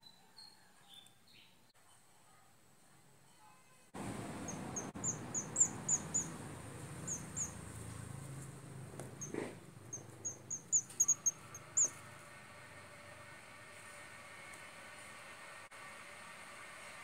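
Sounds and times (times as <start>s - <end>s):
swiftlets twittering chirps: 4.2s - 7.6s, 9.2s - 12.0s.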